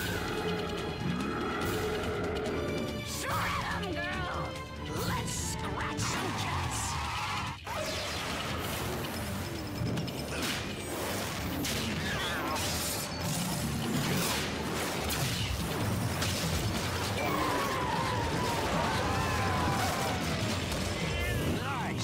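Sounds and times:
blaster shot: 0:10.2 - 0:21.3.

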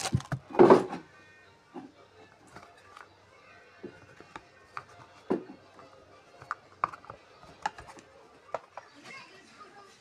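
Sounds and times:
rubber pads clicking and knocking: 0:00.0 - 0:00.9, 0:04.0 - 0:08.8.

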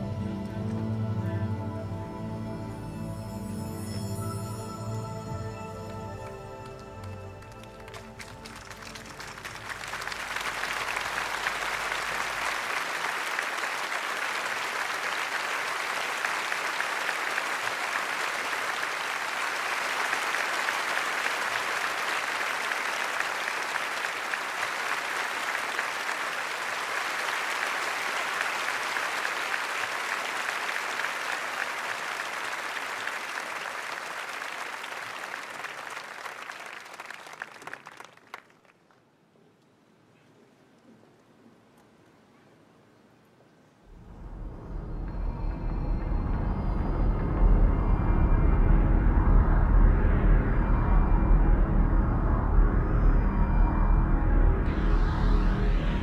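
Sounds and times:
audience applauding: 0:05.9 - 0:39.0.

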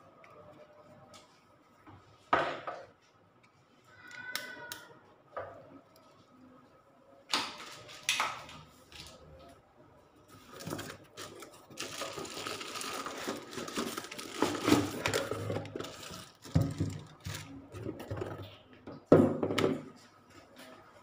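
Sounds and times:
cardboard and plastic crinkling: 0:10.3 - 0:18.4.

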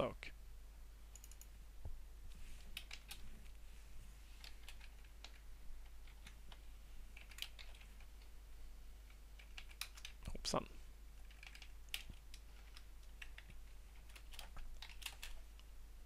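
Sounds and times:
low steady hum: 0:00.0 - 0:16.0
keyboard typing: 0:01.1 - 0:01.6, 0:02.7 - 0:03.4, 0:04.4 - 0:08.3, 0:09.0 - 0:10.3, 0:11.2 - 0:15.5.

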